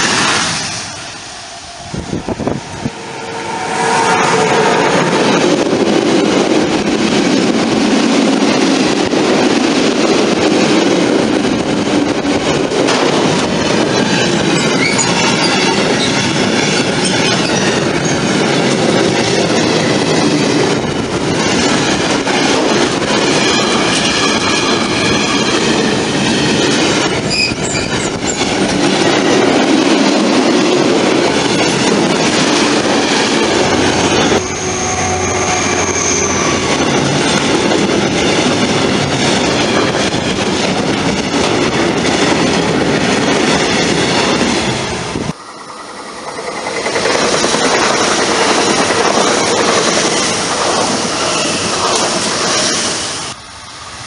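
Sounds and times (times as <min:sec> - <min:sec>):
freight train wheels clattering: 0:04.1 - 0:53.4
high wheel squeal: 0:14.0 - 0:18.3, 0:27.2 - 0:28.4, 0:33.9 - 0:37.1.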